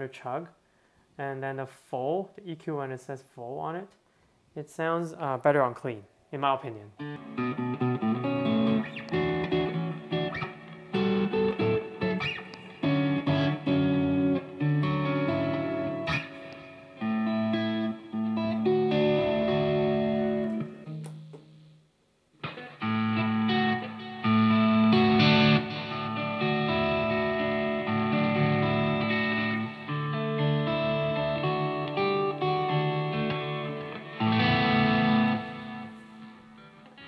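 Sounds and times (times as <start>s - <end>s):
clean electric guitar: 6.9s - 21.8s, 22.4s - 37.0s.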